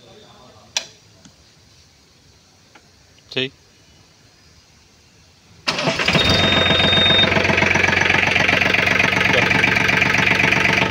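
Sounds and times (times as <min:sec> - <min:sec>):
diesel engine cranking and idling: 0:05.6 - 0:10.9
high beep: 0:06.1 - 0:07.3.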